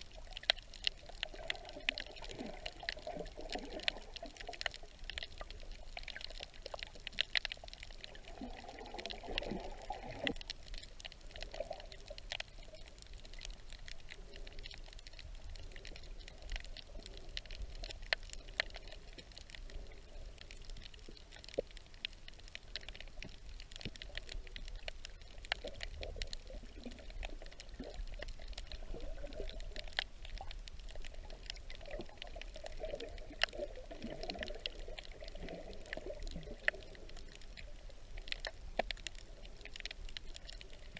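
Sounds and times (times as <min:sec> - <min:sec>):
crackling clicks underwater: 0:00.0 - 0:40.9
water gurgling: 0:00.0 - 0:40.9.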